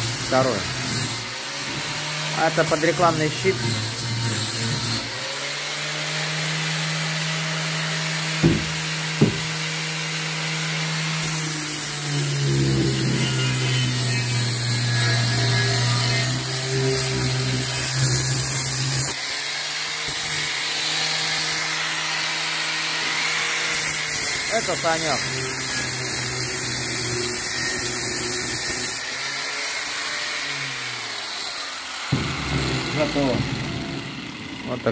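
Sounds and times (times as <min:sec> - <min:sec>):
angle grinder grinding steel: 0:00.0 - 0:34.9
sharp knocks: 0:08.4 - 0:09.6, 0:32.1 - 0:34.2.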